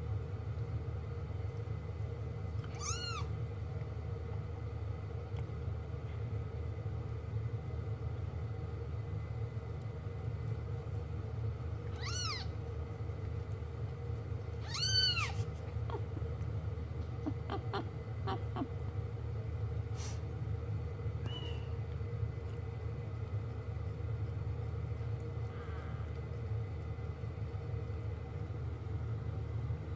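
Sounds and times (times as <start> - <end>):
steady low hum: 0.0 - 29.9
kittens mewing: 2.6 - 3.3.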